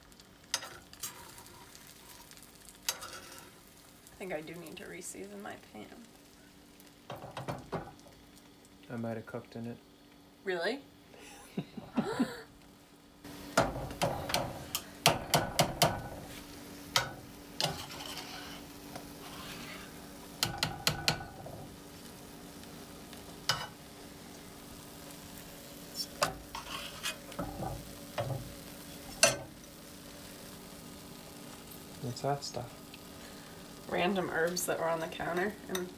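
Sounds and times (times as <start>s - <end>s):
food sizzling in skillets: 0.0s - 35.9s
spatula scraping pans: 0.5s - 3.6s, 17.0s - 21.6s, 26.1s - 29.5s.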